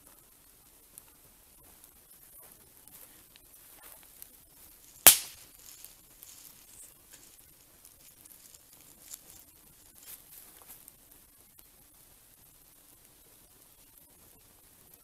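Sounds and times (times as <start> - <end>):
campfire crackling: 0.0 - 15.0
loud sharp fire pop: 5.0 - 5.4.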